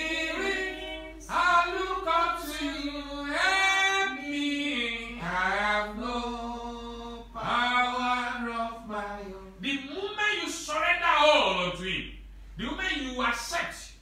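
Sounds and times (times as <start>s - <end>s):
man singing unaccompanied: 0.0s - 10.2s.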